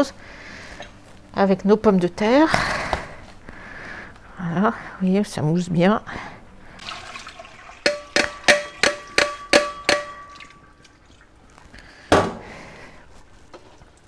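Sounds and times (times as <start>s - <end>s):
metal bowl knocking on strainer: 7.8s - 10.6s
heavy thump: 12.1s - 12.5s.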